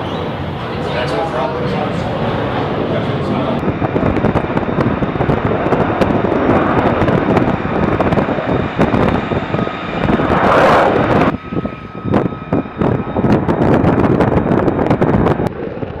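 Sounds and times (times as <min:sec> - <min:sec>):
faint steady jet whine: 0:00.0 - 0:16.0
jet engine roaring: 0:00.0 - 0:16.0.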